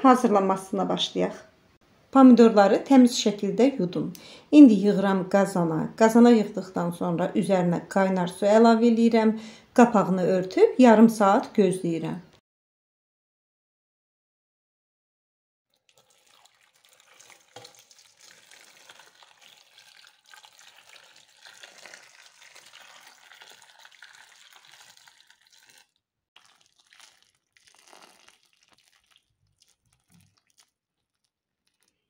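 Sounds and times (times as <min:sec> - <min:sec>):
water pouring into metal pot: 0:15.7 - 0:32.0
water trickling and splashing: 0:15.7 - 0:32.0.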